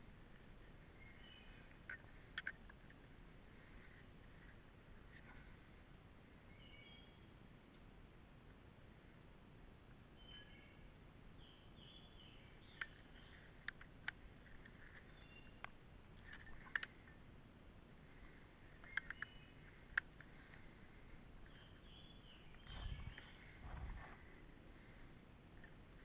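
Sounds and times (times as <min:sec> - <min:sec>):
faint bird chirps: 0:00.8 - 0:02.0, 0:06.3 - 0:07.4, 0:10.1 - 0:13.8, 0:14.9 - 0:17.2, 0:18.1 - 0:25.1.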